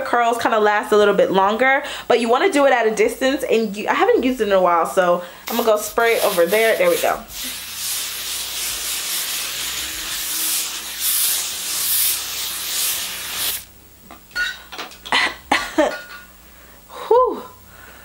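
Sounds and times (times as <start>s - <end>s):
aerosol can spraying: 5.5s - 13.7s.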